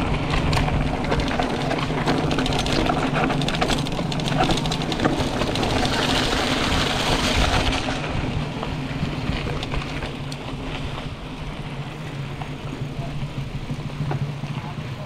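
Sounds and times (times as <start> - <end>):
wind on microphone: 0.0 - 11.2
mountain bike rushing: 0.0 - 15.0
tyres on trail: 0.0 - 15.0.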